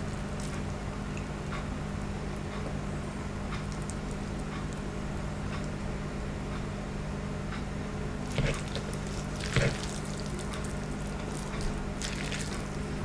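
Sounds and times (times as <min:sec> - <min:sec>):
steady low hum: 0:00.0 - 0:13.0
wet squishes of noodles: 0:03.6 - 0:04.8, 0:08.2 - 0:12.9.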